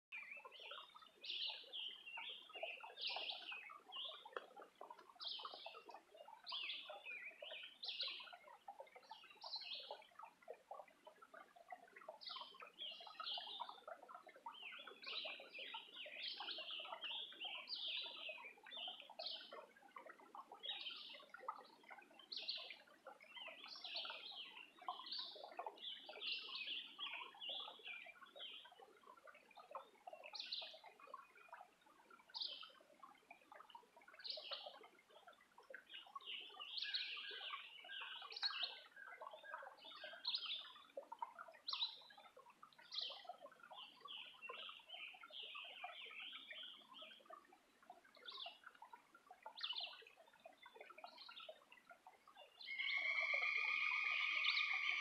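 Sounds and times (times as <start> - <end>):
songbirds chirping: 0.1 - 55.0
soft bird twittering: 0.2 - 8.5, 52.3 - 55.0.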